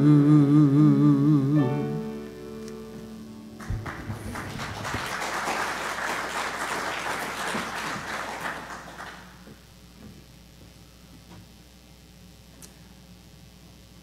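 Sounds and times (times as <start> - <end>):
held music chord: 0.0 - 4.4
congregation applauding: 3.5 - 9.5.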